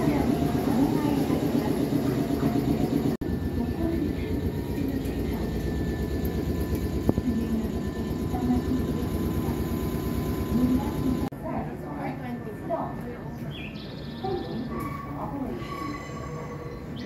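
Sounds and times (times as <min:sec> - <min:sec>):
electric train rumble: 0:00.0 - 0:11.3
faint steady whine: 0:00.0 - 0:13.2.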